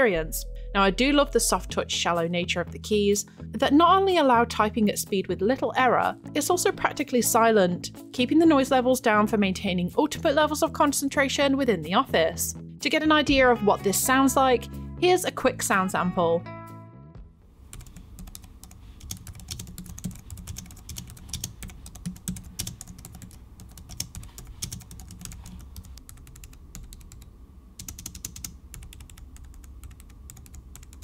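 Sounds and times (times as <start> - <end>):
soft keyboard typing: 17.7 - 31.0.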